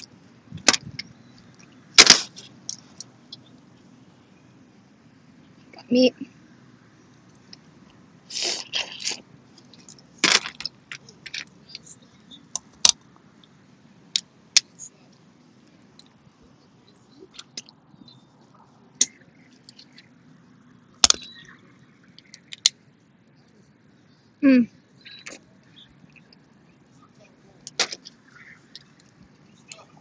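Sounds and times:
shells cracking: 2.0s - 2.8s
sucking at crawfish shells: 8.3s - 11.8s.

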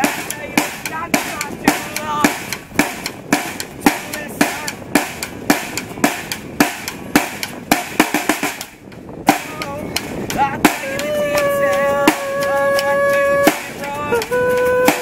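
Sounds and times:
drum kit steady beat: 0.0s - 15.0s.

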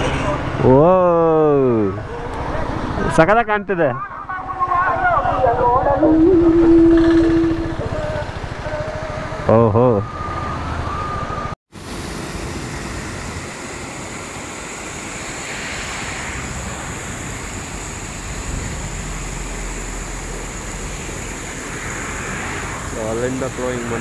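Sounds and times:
steady whistle-like tone: 5.8s - 11.6s.

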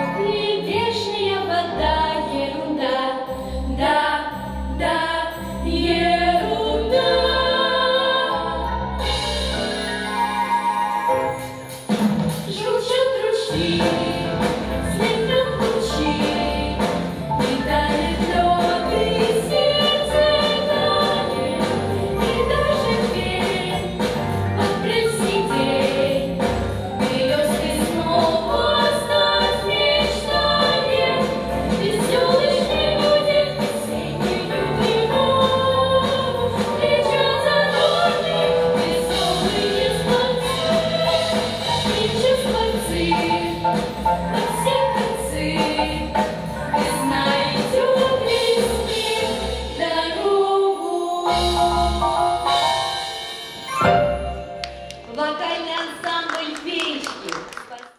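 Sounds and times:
girls singing together: 17.5s - 24.0s, 27.1s - 43.6s, 46.8s - 51.1s.

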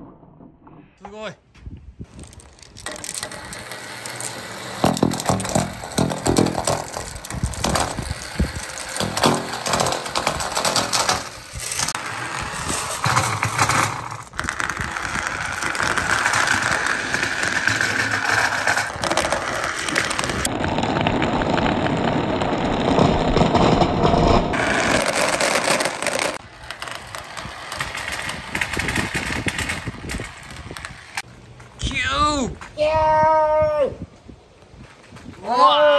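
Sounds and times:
marbles rolling in plastic pipe: 2.0s - 31.3s
marbles clicking together: 2.1s - 20.5s.

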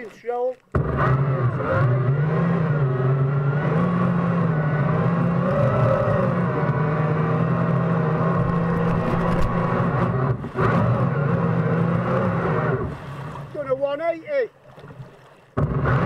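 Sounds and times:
bow wave splashing: 0.0s - 1.6s, 5.2s - 16.0s.

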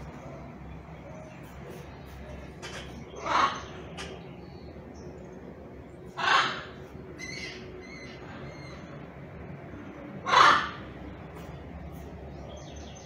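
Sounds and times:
harsh macaw squawk: 6.2s - 8.8s, 10.2s - 10.8s.

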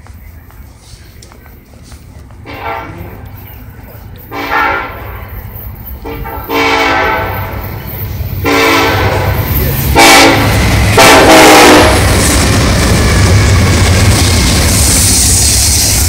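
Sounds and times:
locomotive low rumble: 0.0s - 16.0s
locomotive air horn blasts: 2.5s - 3.0s, 4.3s - 5.2s, 6.0s - 7.6s, 8.4s - 12.2s.

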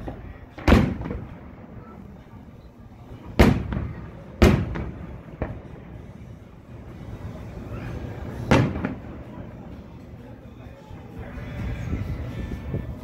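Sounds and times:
firework shells booming: 0.0s - 2.2s, 3.2s - 6.2s, 8.3s - 9.3s.

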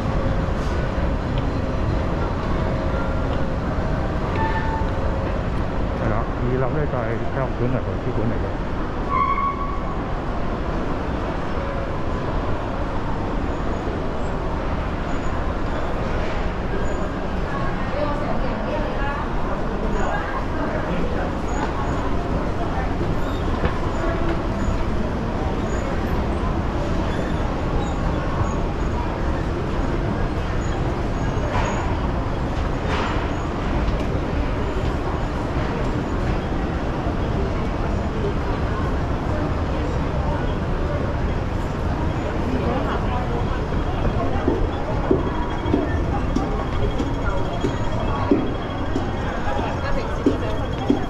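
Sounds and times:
traffic rumble: 0.0s - 9.1s, 9.8s - 51.0s.

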